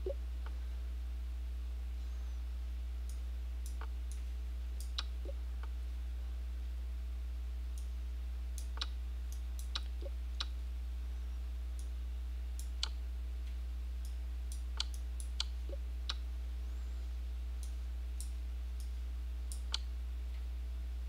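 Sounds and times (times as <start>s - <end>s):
low electrical hum: 0.0s - 21.0s
computer mouse clicking: 14.5s - 16.2s.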